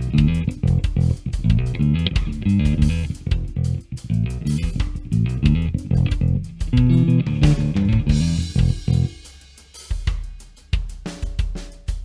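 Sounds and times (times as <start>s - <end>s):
electric bass plucked fingerstyle: 0.0s - 9.2s.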